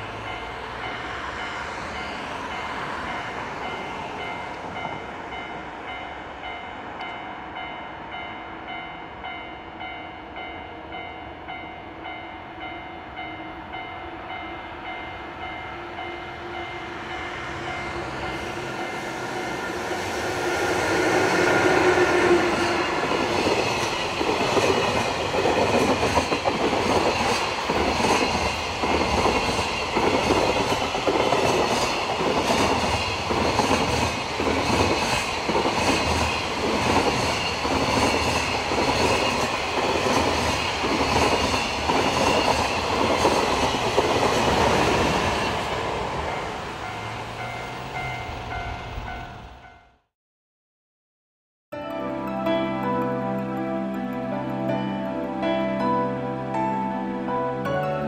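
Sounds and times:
electric locomotive tones: 0.0s - 49.9s.

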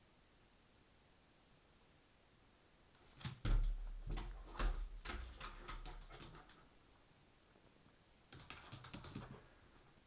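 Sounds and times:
dog claws clicking on floor: 3.0s - 6.6s, 8.3s - 9.4s
dog paws thudding: 3.0s - 6.6s.

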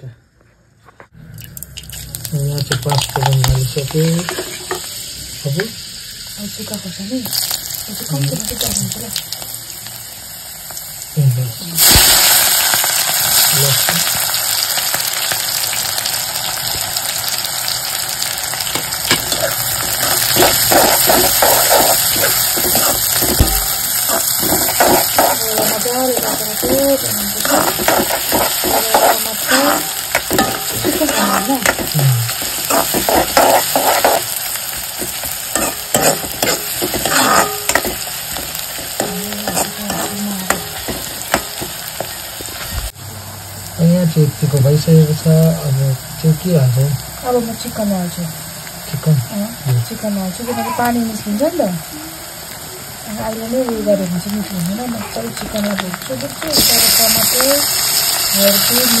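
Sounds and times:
onions sizzling in hot oil: 1.7s - 59.0s
metal spatula scraping: 18.8s - 42.7s.

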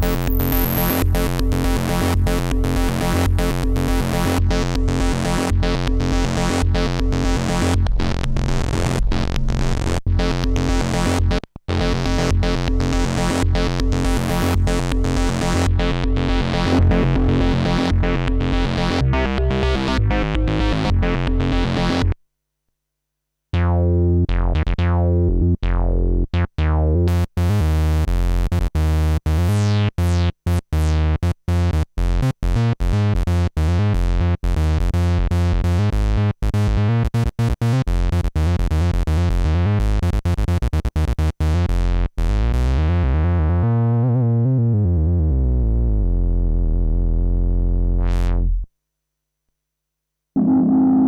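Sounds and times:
analog synthesizer bass notes: 0.0s - 22.2s, 23.5s - 48.7s, 50.4s - 51.0s.

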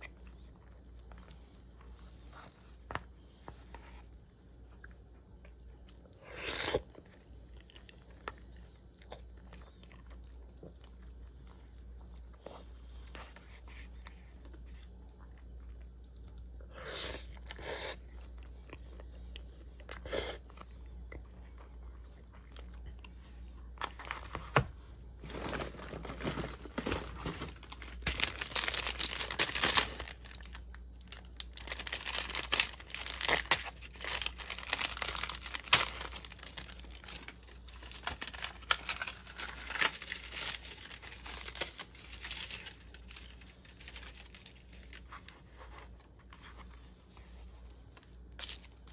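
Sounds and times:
seaweed sheets crackling and tearing: 25.2s - 45.1s
plastic pack crinkling: 25.2s - 47.0s, 47.6s - 48.9s.

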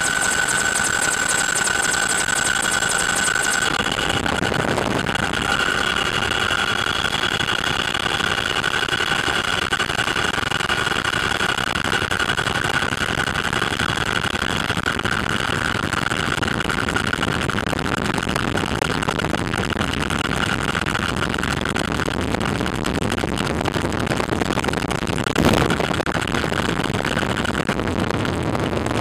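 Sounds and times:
aircraft cabin engine noise: 0.0s - 16.8s
high steady whine: 0.0s - 29.0s.

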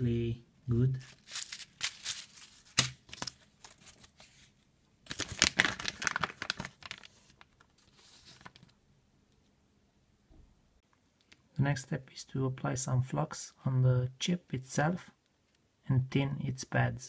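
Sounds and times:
packaging crinkling and rustling: 1.0s - 8.8s.

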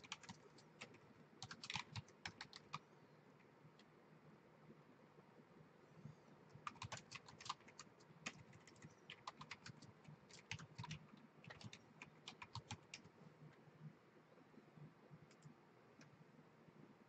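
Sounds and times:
faint keyboard typing: 0.0s - 4.0s, 6.0s - 14.0s, 14.8s - 16.2s.

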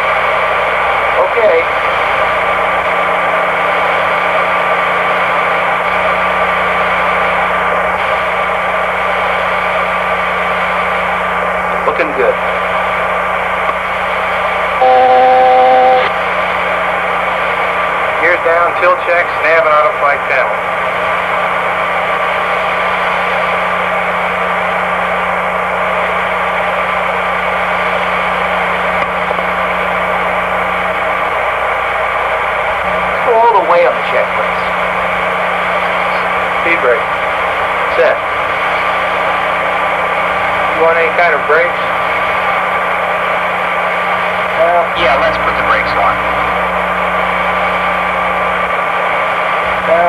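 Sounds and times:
constant low hum: 0.0s - 50.0s
thin steady tone: 14.8s - 16.1s.

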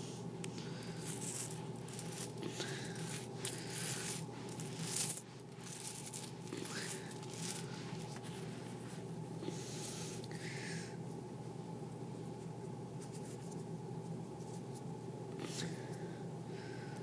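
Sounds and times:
coins clinking and jingling: 0.8s - 8.2s
coins sliding across carpet: 0.8s - 9.0s.

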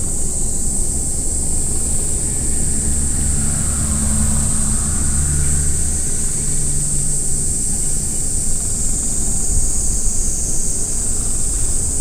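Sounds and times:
vehicle engine droning past: 1.6s - 9.5s.

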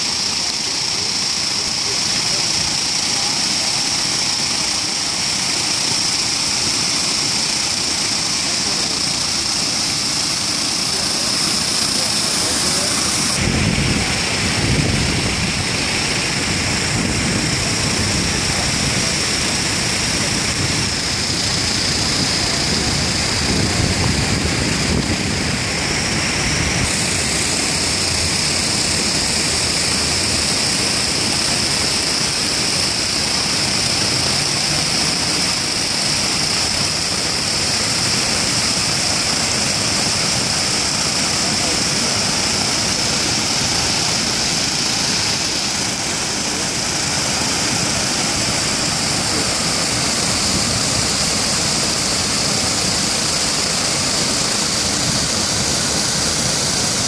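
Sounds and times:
fountain water rushing: 0.0s - 57.0s.

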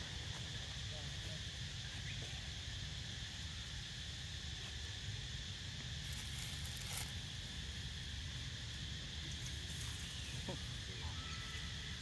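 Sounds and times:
insect drone: 0.0s - 12.0s
rustle and crackle: 5.6s - 7.9s.

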